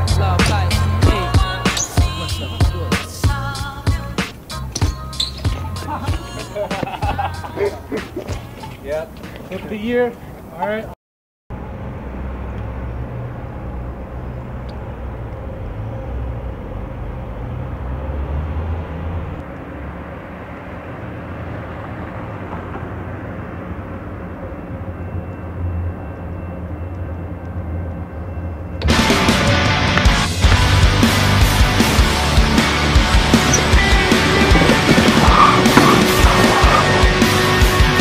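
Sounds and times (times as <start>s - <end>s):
loud rock music: 0.0s - 4.6s, 28.8s - 38.0s
low city traffic rumble: 0.0s - 38.0s.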